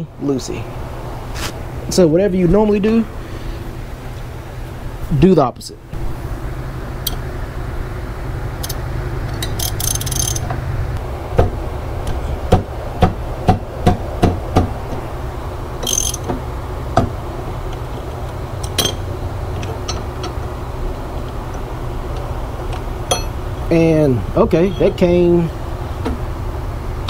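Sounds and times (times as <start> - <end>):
ratchet clicking on metal: 9.4 - 10.5, 15.8 - 16.3
ratchet rattling bursts: 9.4 - 10.5, 15.8 - 16.3.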